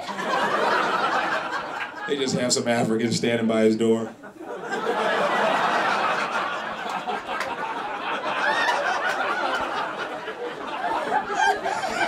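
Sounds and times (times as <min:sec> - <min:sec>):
audience laughing: 0:00.0 - 0:03.2, 0:04.1 - 0:12.0
individual laughs: 0:10.8 - 0:12.0.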